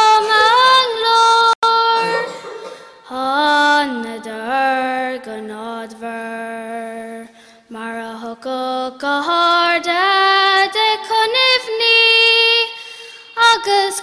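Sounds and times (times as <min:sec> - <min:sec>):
girl singing unaccompanied: 0:00.0 - 0:02.4, 0:03.0 - 0:14.0.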